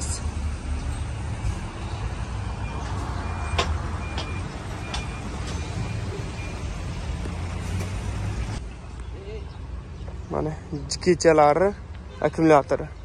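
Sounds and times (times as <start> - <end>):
reversing alarm beeping: 2.4 - 6.8.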